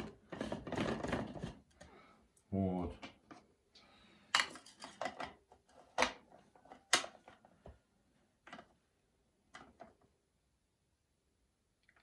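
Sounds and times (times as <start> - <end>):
plastic housings clicking and scraping: 0.0 - 2.0, 4.3 - 7.8.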